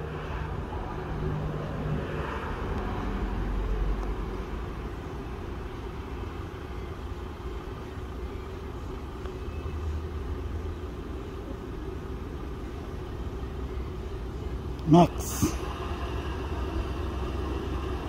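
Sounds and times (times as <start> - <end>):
jet engines rumbling: 11.2 - 18.0.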